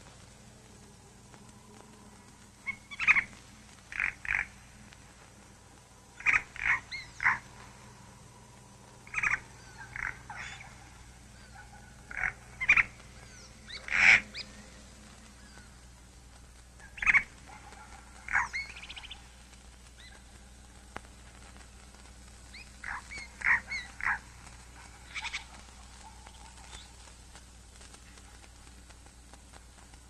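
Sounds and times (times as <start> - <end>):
faint high bird chirps: 2.6 - 4.4, 6.2 - 7.4, 9.1 - 15.8, 16.8 - 19.3, 22.5 - 24.2, 25.0 - 27.0
loud bird calls: 2.6 - 4.9, 6.2 - 8.2, 9.0 - 16.0, 16.8 - 20.5, 22.5 - 27.1.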